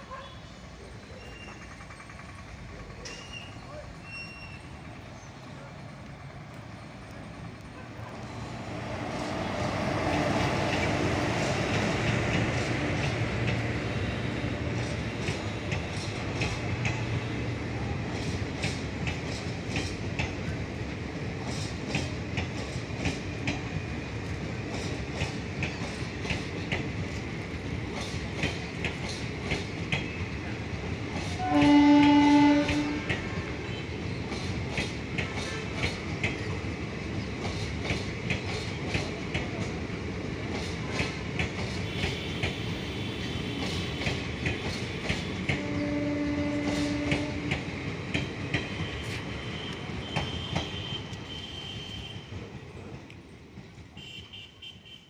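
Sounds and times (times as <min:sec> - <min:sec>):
train rumble: 0:00.0 - 0:55.0
train wheels clicking over rail joints: 0:01.1 - 0:54.2
train horn: 0:31.4 - 0:33.8, 0:41.9 - 0:44.8, 0:45.5 - 0:47.6, 0:48.6 - 0:52.4, 0:54.0 - 0:55.0.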